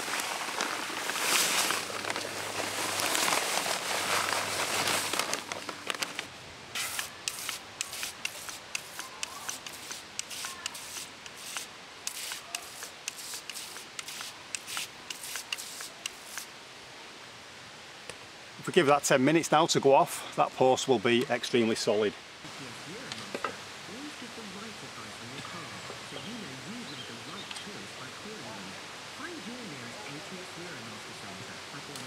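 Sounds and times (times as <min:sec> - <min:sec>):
hose spray gun wetting mix: 0:06.8 - 0:16.5.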